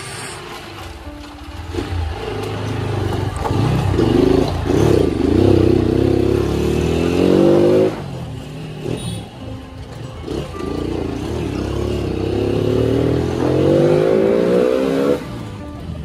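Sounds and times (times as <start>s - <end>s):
motorcycle engine revving: 0.0s - 16.0s.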